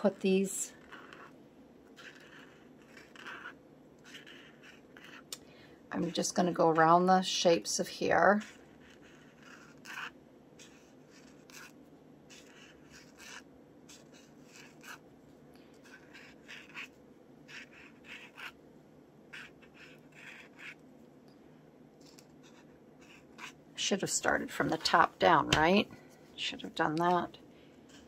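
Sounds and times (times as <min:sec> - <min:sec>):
low room hum: 0:00.0 - 0:28.0
marker scratching on paper: 0:00.8 - 0:05.3, 0:08.0 - 0:15.0, 0:15.8 - 0:18.6, 0:19.3 - 0:20.8, 0:22.0 - 0:23.6.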